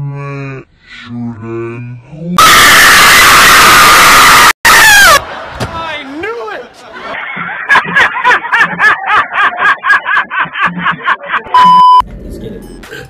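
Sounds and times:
test-tone beep: 0:11.5 - 0:12.0.

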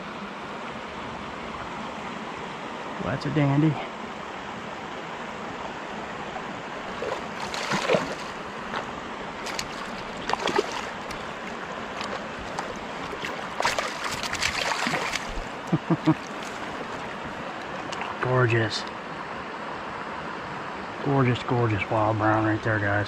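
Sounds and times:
flowing water: 0:00.0 - 0:23.0
fish splashing at surface: 0:06.9 - 0:18.2.

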